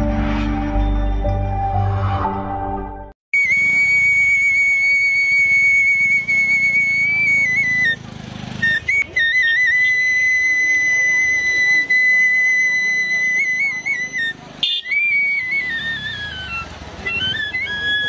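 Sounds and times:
intro music: 0:00.0 - 0:03.2
bamboo flute playing: 0:03.3 - 0:08.0, 0:08.6 - 0:18.0.

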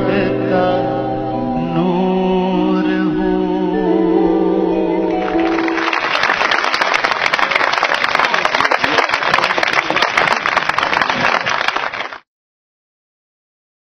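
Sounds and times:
song with long held notes: 0:00.0 - 0:06.7
audience applause: 0:05.1 - 0:12.2.

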